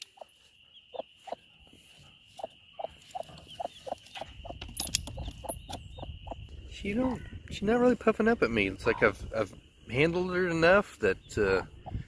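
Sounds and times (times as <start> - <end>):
hen clucking: 0.0 - 6.5, 8.6 - 9.2, 11.3 - 12.0.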